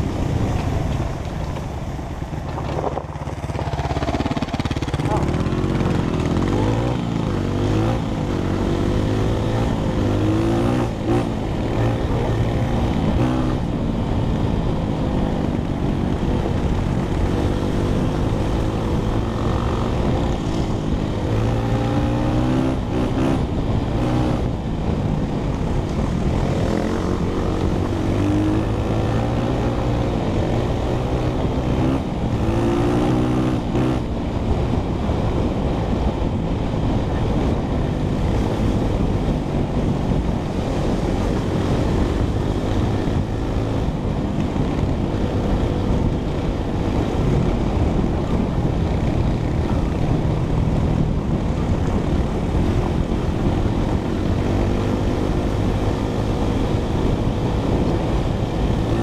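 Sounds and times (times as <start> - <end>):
dirt bike engine revving: 26.2 - 34.1.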